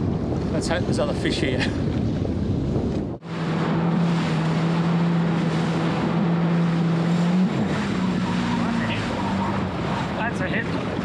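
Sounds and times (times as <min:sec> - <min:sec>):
sea noise: 0:00.0 - 0:11.0
wind buffeting microphone: 0:00.0 - 0:11.0
jet ski engine running: 0:01.8 - 0:11.0
rushing water: 0:03.2 - 0:11.0.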